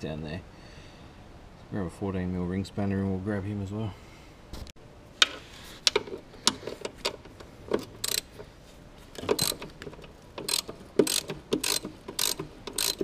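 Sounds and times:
ratcheting spanner clicking: 5.8 - 8.4, 9.2 - 13.0
spanner knocking against metal: 7.7 - 8.3, 9.2 - 9.7, 10.3 - 13.0.

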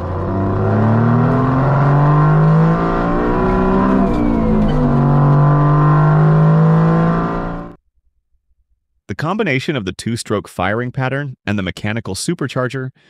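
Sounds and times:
diesel truck engine accelerating: 0.0 - 7.8.

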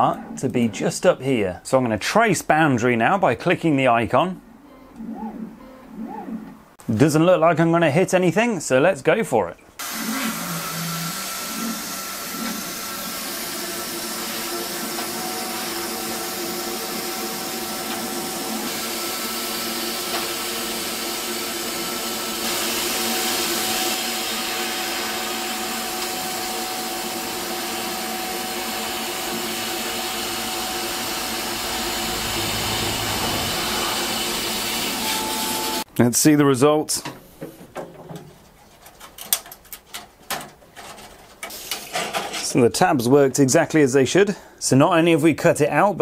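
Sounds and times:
extraction fan hum: 9.8 - 35.9.

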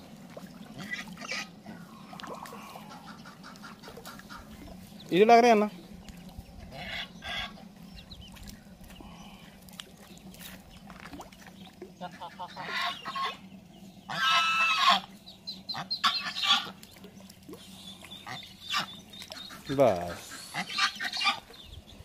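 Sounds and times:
geese honking: 0.7 - 5.7, 6.6 - 8.0, 12.0 - 16.8, 18.1 - 21.5.

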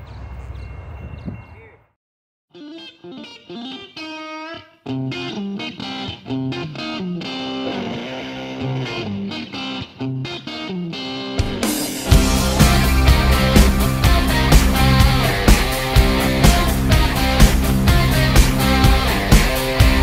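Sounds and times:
electric guitar music: 2.5 - 20.0
bass line: 12.0 - 20.0.

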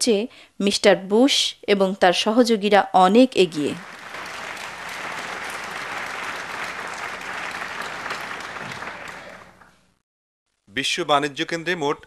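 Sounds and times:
audience applauding: 3.7 - 9.8.

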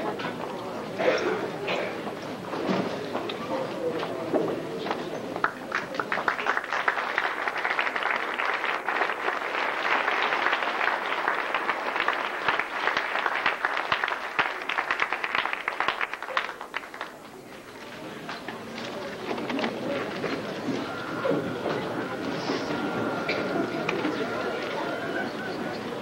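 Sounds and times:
audience applauding: 5.4 - 17.4, 19.4 - 26.0.

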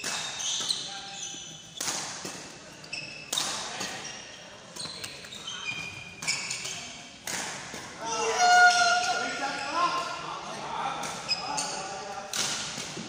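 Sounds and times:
racket hitting shuttlecock: 0.0 - 0.9, 1.8 - 2.6, 3.2 - 4.0, 6.2 - 8.0, 12.3 - 13.0
shoes squeaking on wooden court: 0.0 - 7.1, 11.0 - 12.0.

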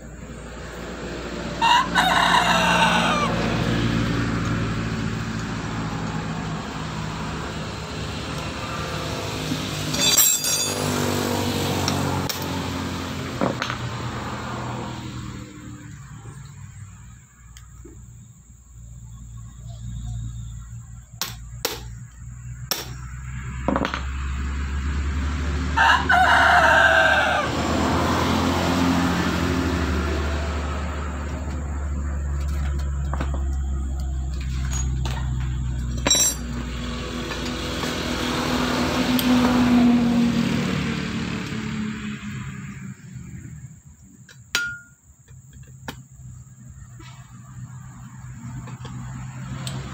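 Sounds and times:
vehicle passing: 0.0 - 44.0, 46.3 - 49.9
vehicle engine rumble: 0.0 - 49.9
sharp metal clink: 9.9 - 11.1, 36.0 - 36.5, 44.5 - 45.0.

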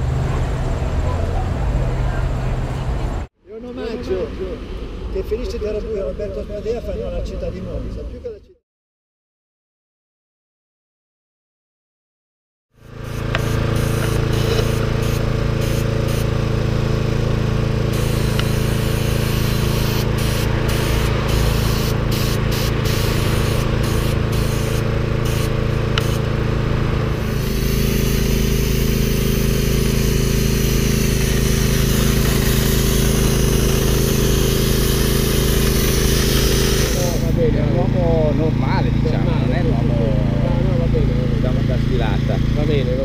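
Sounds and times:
spray gun hissing: 12.8 - 37.5
motor droning: 12.8 - 43.0.

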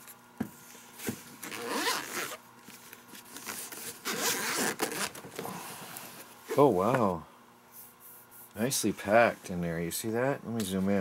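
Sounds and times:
zipper rasping open: 1.4 - 2.4, 3.9 - 5.2.

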